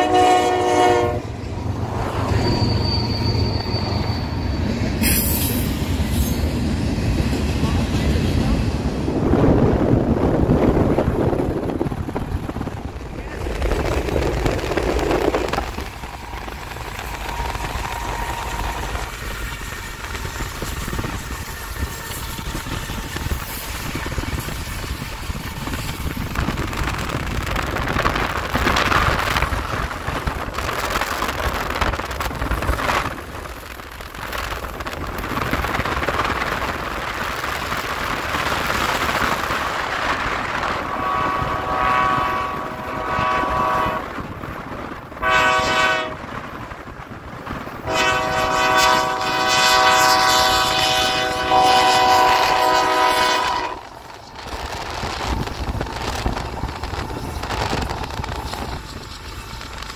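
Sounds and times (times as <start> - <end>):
locomotive air horn blasts: 0.0 - 1.3, 40.8 - 44.2, 45.2 - 46.2, 47.8 - 53.9
freight train rumble: 0.0 - 59.9.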